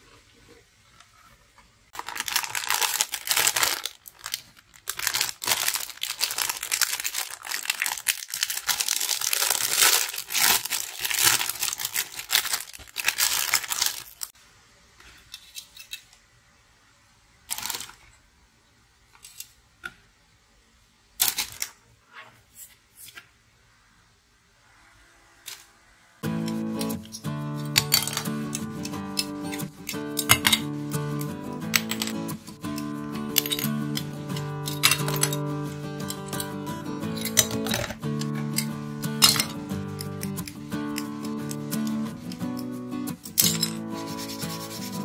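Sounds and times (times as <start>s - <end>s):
plastic bags crinkling and tearing: 2.0s - 14.3s, 17.5s - 18.1s, 27.8s - 42.6s.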